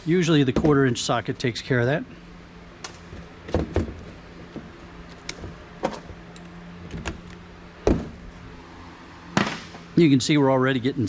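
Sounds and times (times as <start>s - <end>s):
steady low hum: 0.0s - 11.0s
tool and metal case knocks: 3.1s - 6.2s.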